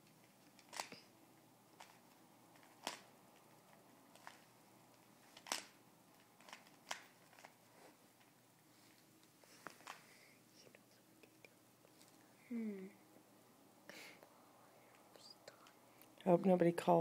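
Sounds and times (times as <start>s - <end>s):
puzzle cube plastic clicks: 0.5s - 1.1s, 2.6s - 3.1s, 4.1s - 4.5s, 5.3s - 7.6s.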